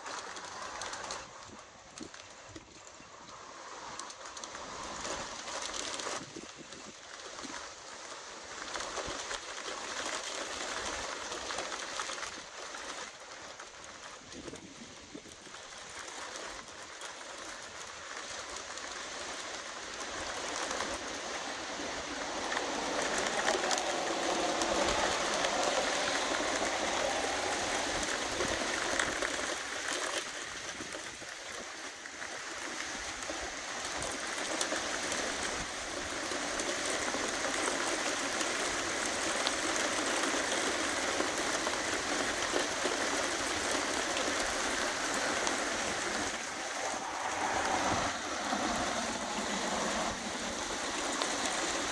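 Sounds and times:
wind rushing through tree leaves: 0.0 - 51.9.

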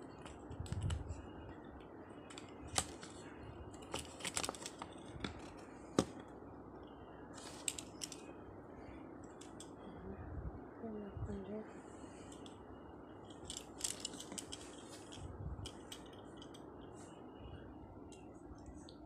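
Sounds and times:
cardboard and plastic packaging rustling: 2.3 - 6.3, 7.4 - 8.2.

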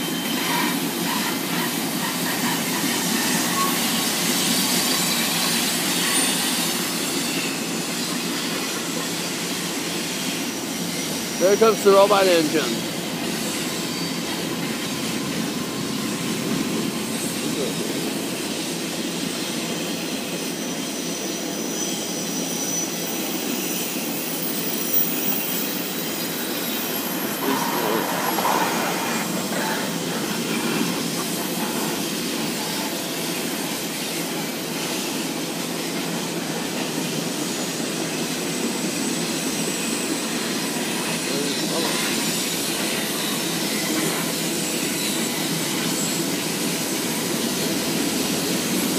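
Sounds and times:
faint wheel squeal: 0.0 - 38.4
train wheels rumbling on rails: 0.0 - 48.9.

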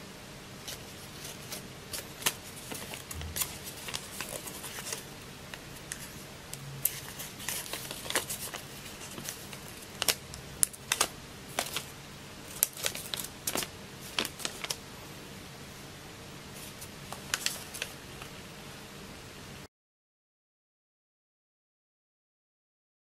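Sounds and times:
paper being creased and rustled: 0.7 - 5.0, 6.8 - 11.9, 12.5 - 14.8, 16.6 - 18.3.

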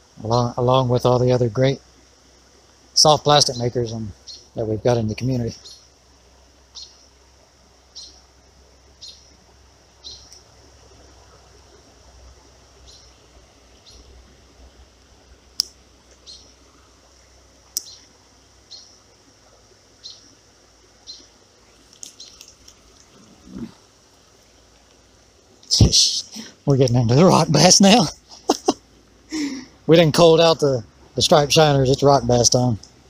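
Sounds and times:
bird chirping: 3.0 - 6.0, 6.7 - 7.2, 7.9 - 8.3, 8.9 - 10.5, 12.7 - 14.2, 15.6 - 17.0, 17.7 - 19.2, 20.0 - 20.4, 21.0 - 23.8.

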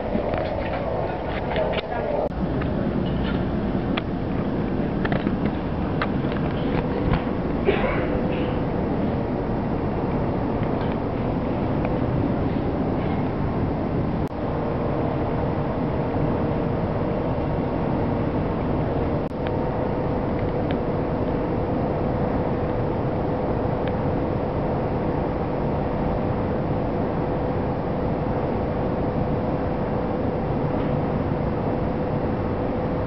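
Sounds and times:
train wheels rumbling on track: 0.0 - 21.4
mid-pitched train hum: 0.0 - 33.0.

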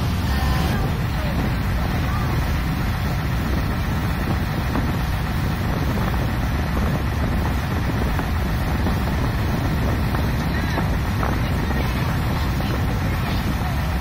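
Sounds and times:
low boat engine drone: 0.0 - 14.0
rushing water: 0.0 - 14.0
wind noise: 0.0 - 14.0.

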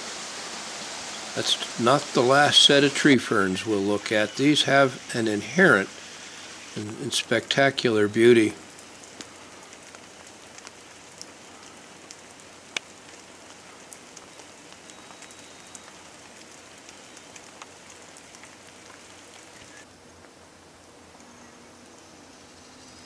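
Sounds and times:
sharp water drips: 0.0 - 19.9
light rain on foliage: 0.0 - 23.0.

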